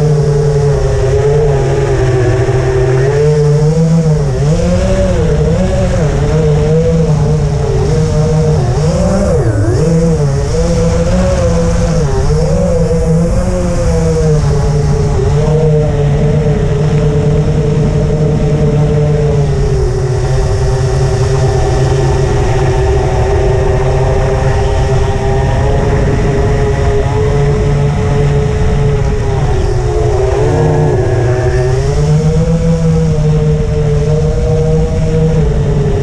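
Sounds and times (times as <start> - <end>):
quadcopter motors whirring: 0.0 - 36.0.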